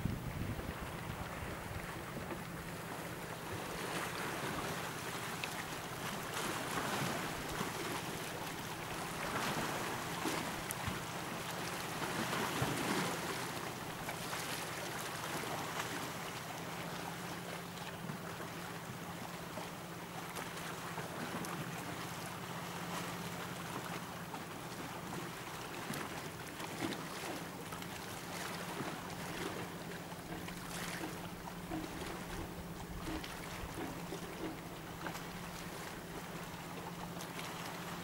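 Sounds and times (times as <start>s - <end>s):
choppy lake water: 0.0s - 38.0s
wind: 0.0s - 38.0s.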